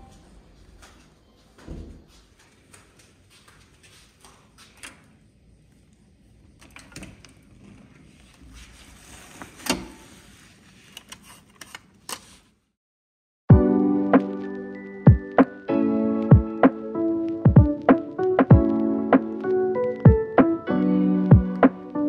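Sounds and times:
music with sustained notes: 0:13.5 - 0:22.0.

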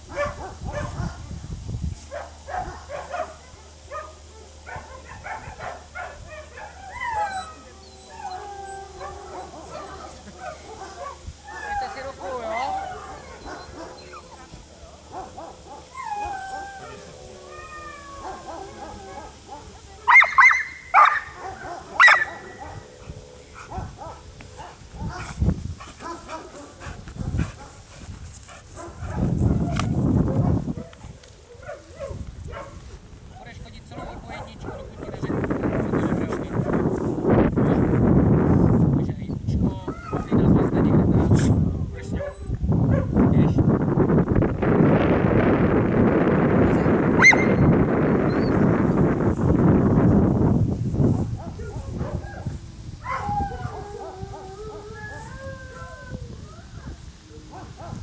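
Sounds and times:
dog yipping and barking: 0:00.1 - 0:01.1, 0:04.7 - 0:14.5, 0:15.2 - 0:22.8, 0:42.2 - 0:43.2, 0:45.8 - 0:48.6
dog whining: 0:06.8 - 0:14.6, 0:15.7 - 0:19.3, 0:45.8 - 0:49.0.

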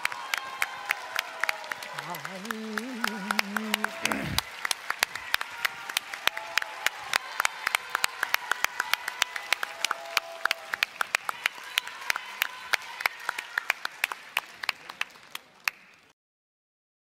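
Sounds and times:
audience applauding: 0:00.0 - 0:16.1.

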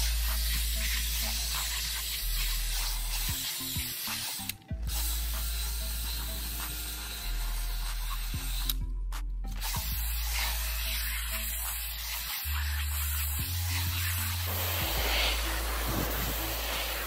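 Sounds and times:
background music: 0:00.0 - 0:17.0
cordless drill brush whirring: 0:09.6 - 0:17.0.

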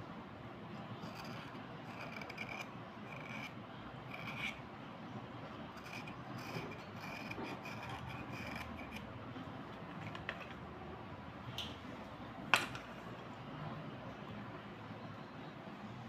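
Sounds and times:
gritty scraping of pencils: 0:00.7 - 0:04.6, 0:05.4 - 0:09.1, 0:09.7 - 0:10.7.

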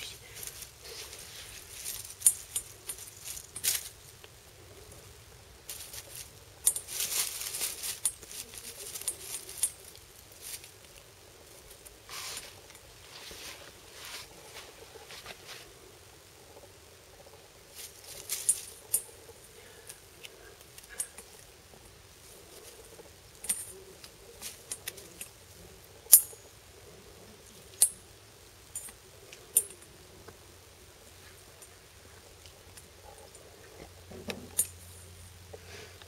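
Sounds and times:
dry twig crackling: 0:00.0 - 0:26.8.

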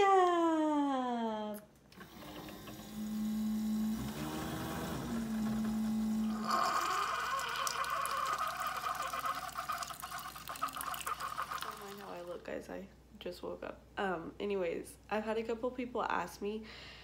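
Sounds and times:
coffee maker humming: 0:02.0 - 0:12.4
coffee pouring into mug: 0:06.2 - 0:12.4.

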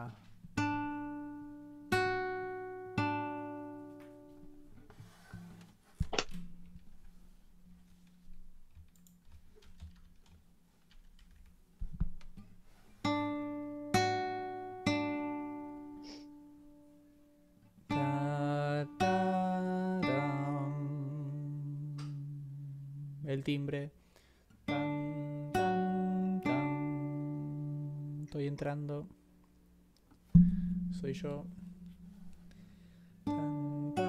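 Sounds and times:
acoustic guitar plucked notes: 0:00.0 - 0:04.8, 0:13.0 - 0:23.3, 0:24.6 - 0:29.2, 0:30.2 - 0:34.0
person singing sustained notes: 0:18.0 - 0:23.3.

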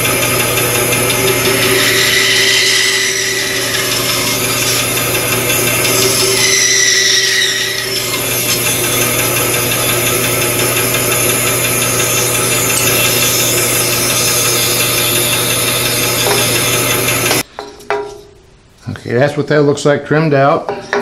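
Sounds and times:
bandsaw cutting wood: 0:00.0 - 0:17.4
bandsaw motor hum: 0:00.0 - 0:17.5.

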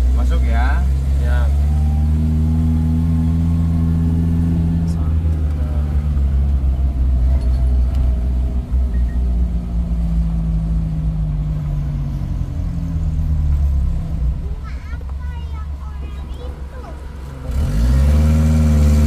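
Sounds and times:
vehicle engine running: 0:00.0 - 0:19.0.

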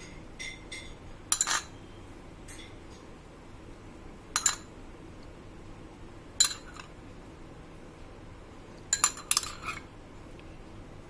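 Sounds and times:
metal spoon clinking on glass bowl: 0:00.0 - 0:01.8, 0:04.4 - 0:04.7, 0:06.4 - 0:06.9, 0:08.9 - 0:09.8.

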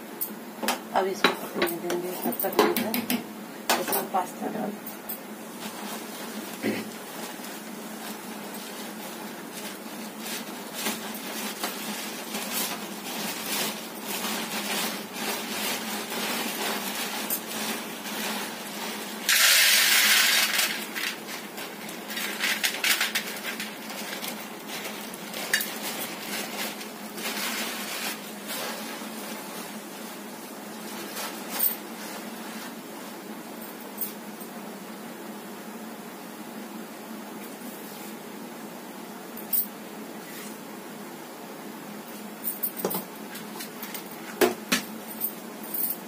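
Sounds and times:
loud burst of hissing: 0:19.2 - 0:20.8
gas burner hiss: 0:19.2 - 0:21.3.

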